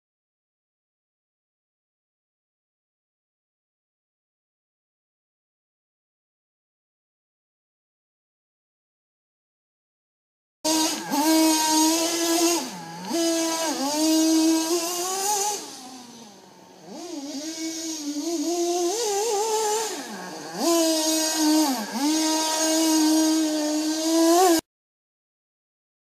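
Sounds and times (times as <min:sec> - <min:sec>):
rc buggy engine revving: 0:10.7 - 0:24.7.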